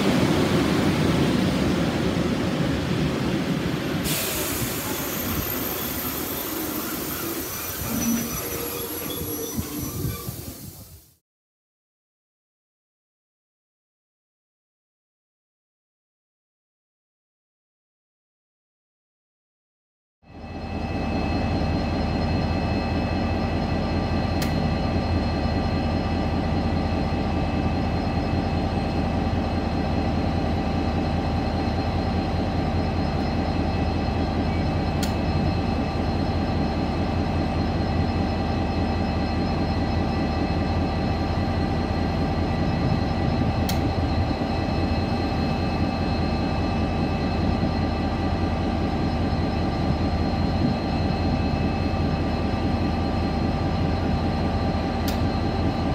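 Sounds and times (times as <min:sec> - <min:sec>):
diesel locomotive idling: 0:00.0 - 0:10.8, 0:20.3 - 0:55.9
steady whining tones: 0:20.4 - 0:55.9.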